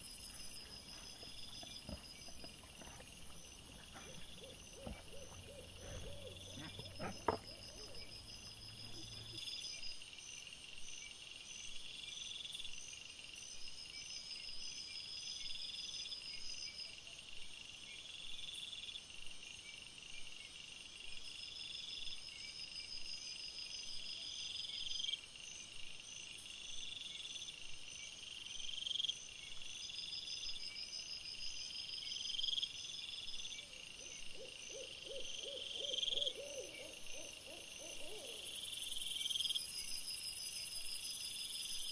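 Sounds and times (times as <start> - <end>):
pulsed cricket trilling: 0.0 - 9.9, 32.8 - 41.9.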